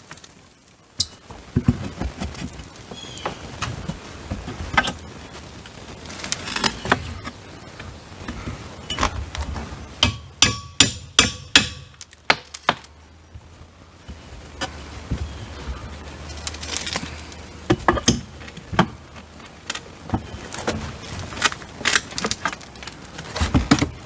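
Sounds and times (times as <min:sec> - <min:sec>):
hammer striking steel pry bar: 0:10.0 - 0:12.4.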